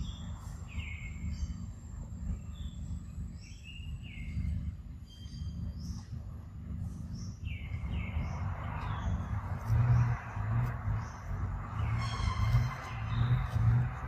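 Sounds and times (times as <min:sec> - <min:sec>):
high bird chirps: 0:00.0 - 0:10.2
steady low rumble: 0:00.0 - 0:14.0.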